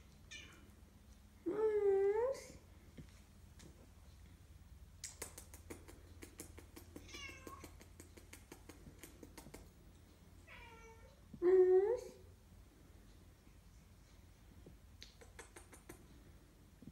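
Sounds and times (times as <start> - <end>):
cat meowing: 7.0 - 7.6.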